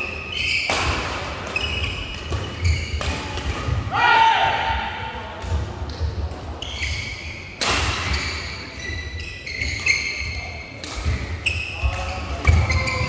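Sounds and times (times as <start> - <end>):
shoes squeaking on court floor: 0.0 - 3.8, 6.6 - 13.0
racket hitting shuttlecock: 0.5 - 3.8, 10.8 - 11.4.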